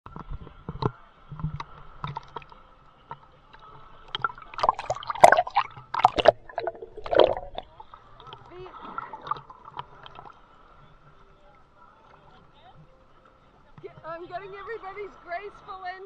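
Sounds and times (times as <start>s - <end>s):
water splashing and gurgling: 4.0s - 10.5s.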